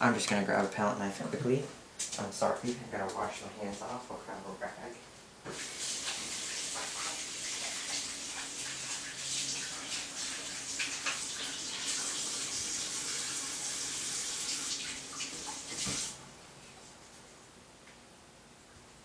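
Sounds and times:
tap water splashing on hands: 15.2s - 16.1s.

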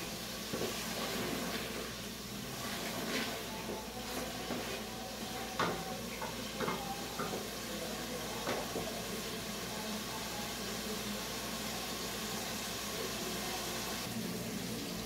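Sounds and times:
food sizzling in a pot: 0.0s - 15.0s
wooden spoon knocking on pot: 5.6s - 7.5s, 8.4s - 8.9s.

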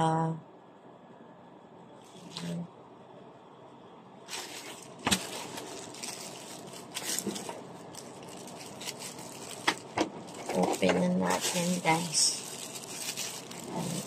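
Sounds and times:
plastic bag crinkling and tearing: 4.3s - 14.0s.

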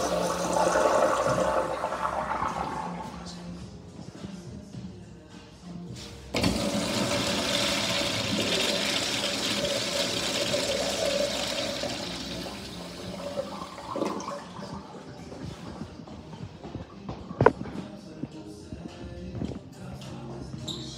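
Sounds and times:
urinal flushing: 0.0s - 3.4s, 6.3s - 15.8s.

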